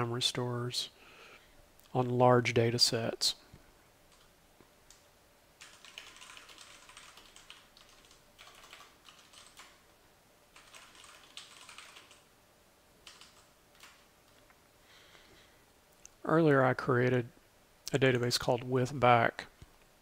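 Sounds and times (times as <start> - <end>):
typing on computer keyboard: 5.6 - 9.8, 10.5 - 12.3, 13.0 - 14.4.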